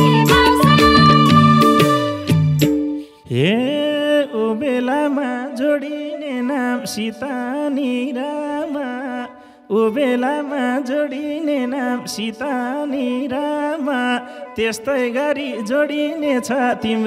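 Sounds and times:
folk band instrumental: 0.0 - 3.1.

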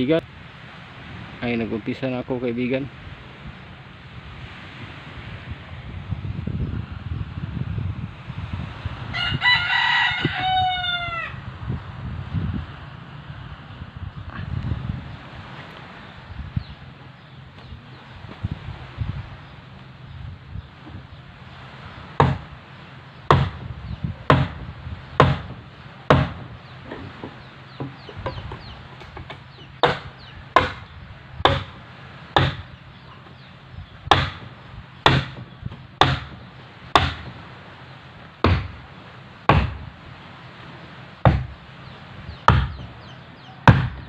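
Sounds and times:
wooden mallet knocking on wood: 22.2 - 22.5, 25.2 - 31.8, 34.1 - 37.4, 38.4 - 38.8, 41.3 - 41.5, 42.5 - 42.9, 43.6 - 44.0.

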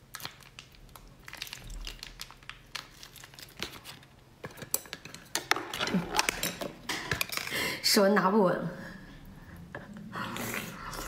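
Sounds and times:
plastic bag crinkling: 0.1 - 4.2.

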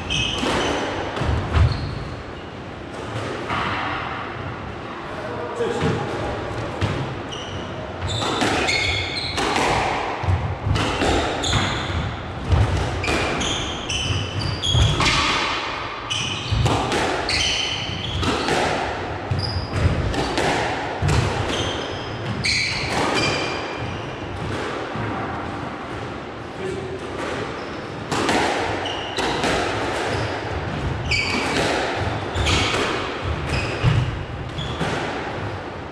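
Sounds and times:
shoes squeaking on court floor: 0.0 - 2.6, 7.3 - 9.7, 10.8 - 12.2, 12.9 - 15.3, 16.1 - 18.6, 19.3 - 20.4, 21.4 - 24.3, 27.4 - 28.0, 28.7 - 35.1
squash ball hitting walls: 8.0 - 26.2, 27.0 - 35.9.

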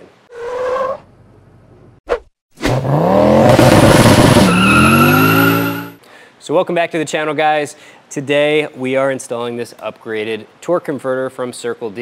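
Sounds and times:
car engine revving: 2.7 - 6.0.

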